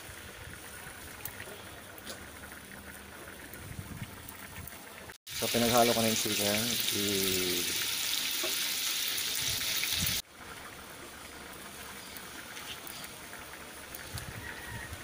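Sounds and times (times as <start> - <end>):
sauce bubbling in wok: 0.0 - 15.0
meat sizzling in wok: 5.3 - 14.9.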